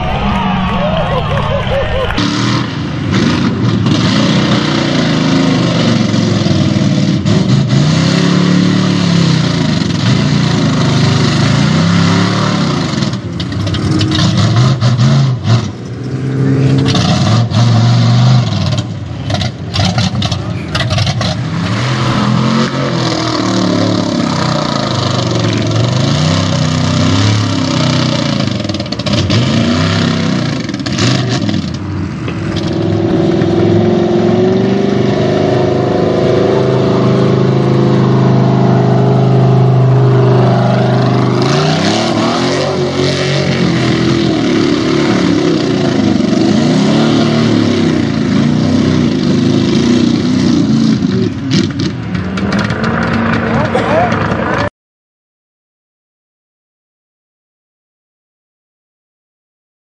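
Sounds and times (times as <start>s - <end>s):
truck engine revving: 0.0s - 54.7s.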